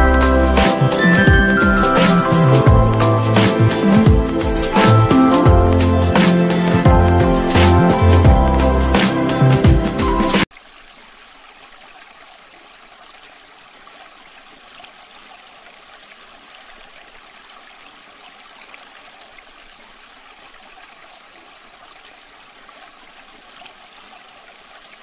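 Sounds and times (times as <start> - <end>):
fountain water trickling: 10.5 - 25.0.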